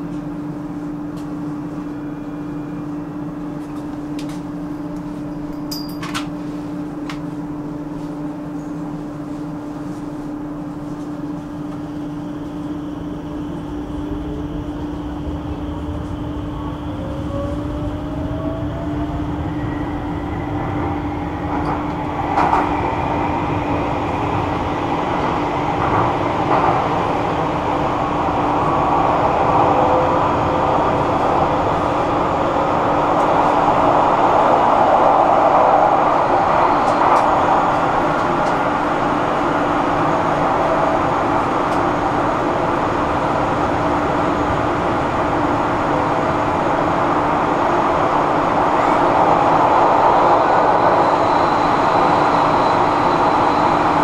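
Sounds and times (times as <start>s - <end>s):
metro train running hum: 0.0s - 54.0s
rising motor whine: 13.6s - 24.7s.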